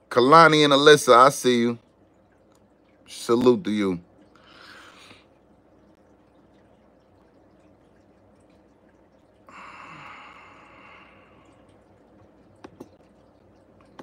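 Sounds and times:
person exhaling breathily: 9.5 - 11.4.

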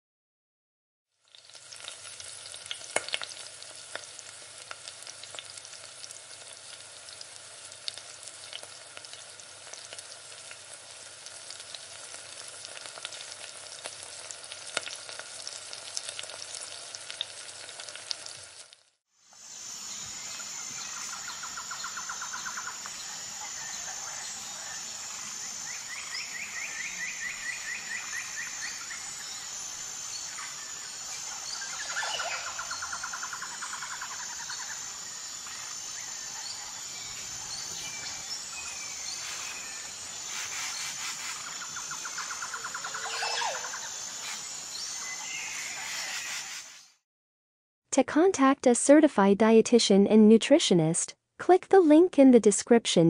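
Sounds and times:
food sizzling in a pan: 1.1 - 47.0
high-pitched hum: 19.3 - 46.4
birds trilling: 19.8 - 46.7.

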